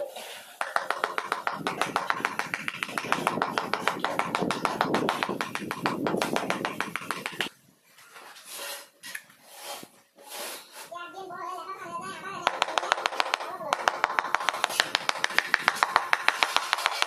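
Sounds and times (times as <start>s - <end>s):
mallet tapping ceramic tile: 0.6s - 7.5s, 12.4s - 17.0s.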